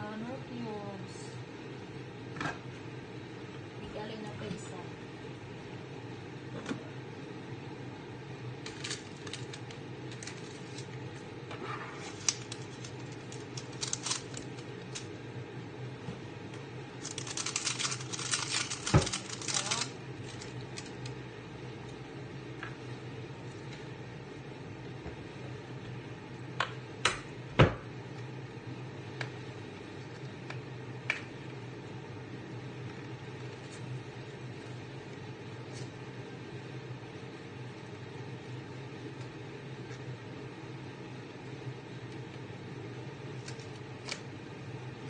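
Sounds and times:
steady low hum: 0.0s - 45.0s
box and wrappers being handled: 8.6s - 11.2s, 12.0s - 15.1s, 17.0s - 21.2s
foil packet crinkling: 8.6s - 11.2s, 12.0s - 15.2s, 17.0s - 21.2s, 43.3s - 44.3s.

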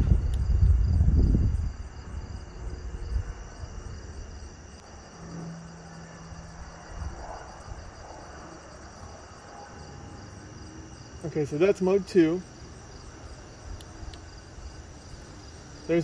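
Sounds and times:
low rumble: 0.0s - 10.3s
crickets chirping: 0.0s - 16.0s.

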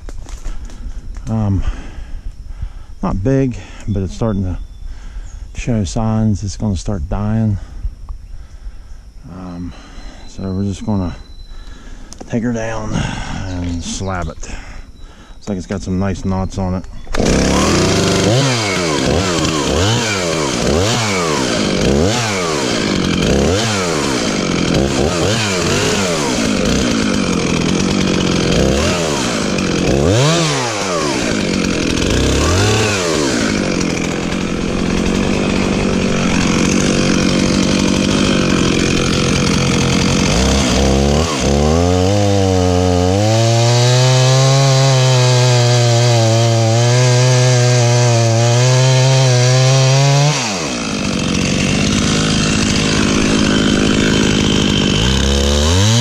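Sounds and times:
chainsaw cutting wood: 17.1s - 56.0s.

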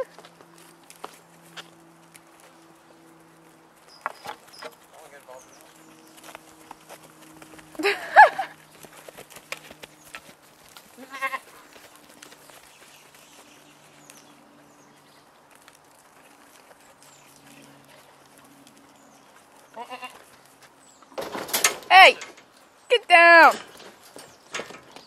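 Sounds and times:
goats butting heads: 0.0s - 22.8s
goats bleating: 10.9s - 11.8s, 19.7s - 20.4s.

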